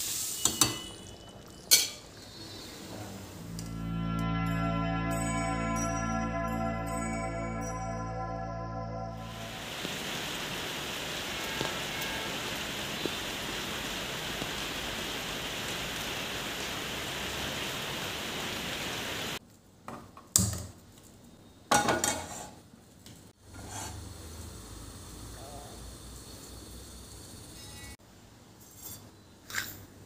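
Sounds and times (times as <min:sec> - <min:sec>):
metal cookware clanking: 0:00.4 - 0:02.2
steady rain on trees: 0:09.2 - 0:19.4.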